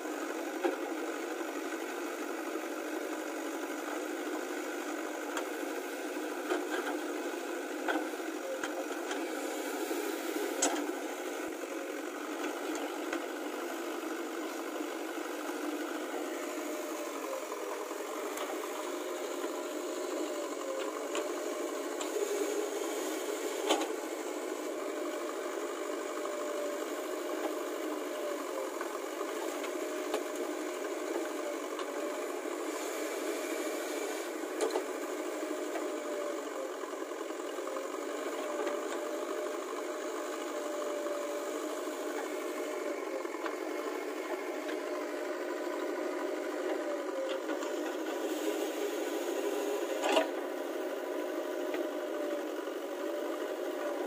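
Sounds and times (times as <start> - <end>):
diesel engine running with rattle: 0.0 - 54.0.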